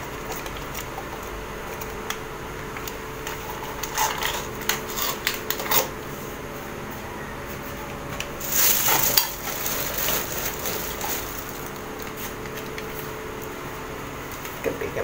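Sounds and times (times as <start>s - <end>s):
fan humming: 0.0s - 15.0s
household items clattering: 8.4s - 12.0s.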